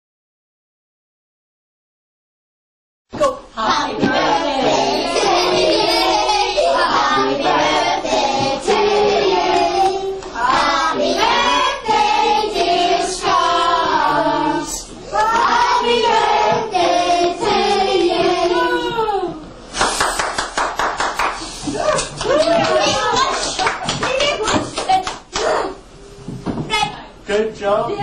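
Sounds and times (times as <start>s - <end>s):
children singing together: 3.6s - 19.2s.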